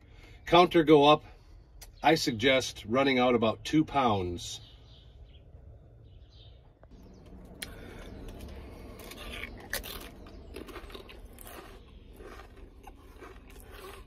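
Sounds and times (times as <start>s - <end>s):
man chewing crisps: 7.0s - 14.0s.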